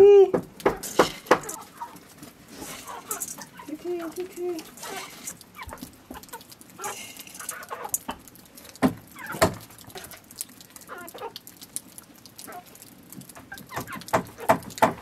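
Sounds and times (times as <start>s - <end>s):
chickens clucking: 0.6s - 8.2s, 9.1s - 10.2s, 10.8s - 11.4s.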